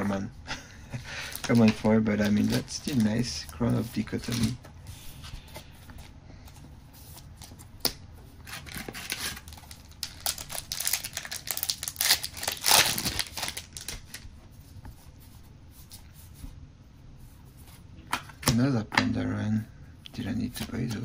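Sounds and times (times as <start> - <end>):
cards and wrapper rustling: 0.9 - 4.6, 8.4 - 14.2.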